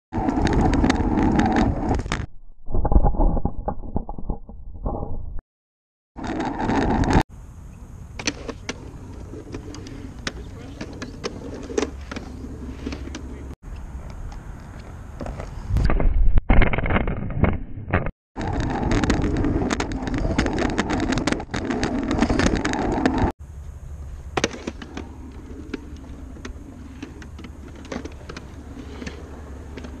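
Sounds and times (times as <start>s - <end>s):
wheelchair wheels rolling on concrete: 6.2s - 7.2s, 8.2s - 14.1s, 18.4s - 23.3s, 24.4s - 30.0s.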